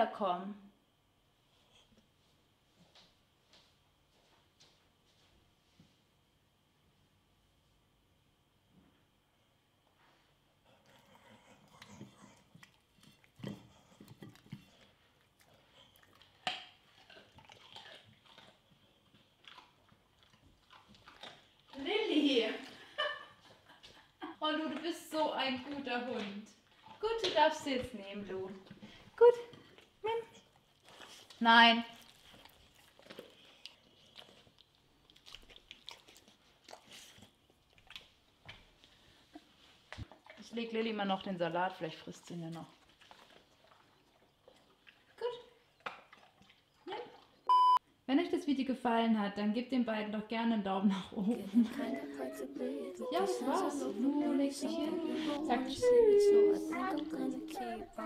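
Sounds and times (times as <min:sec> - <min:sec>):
dog chewing a carrot: 0:10.8 - 0:21.9, 0:29.5 - 0:40.4, 0:42.7 - 0:47.4.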